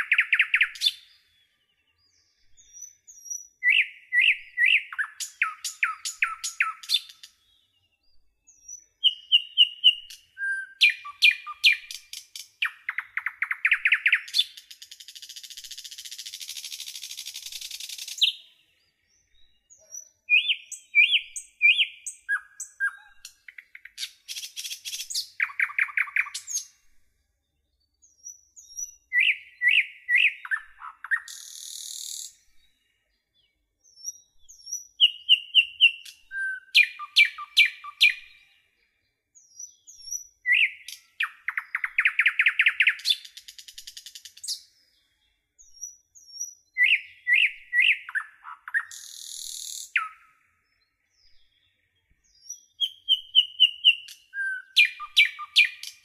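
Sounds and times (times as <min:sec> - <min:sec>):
songbirds singing: 0:00.0 - 0:56.0.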